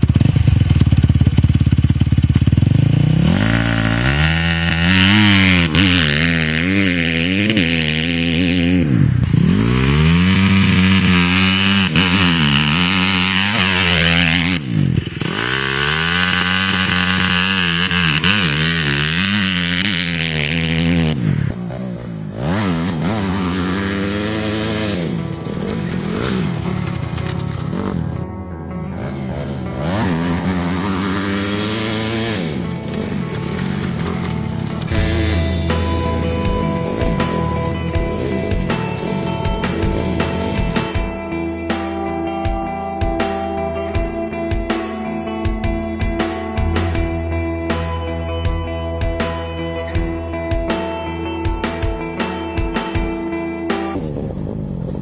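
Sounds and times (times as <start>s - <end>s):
motocross bike engine revving: 0.0s - 28.3s, 28.9s - 41.3s.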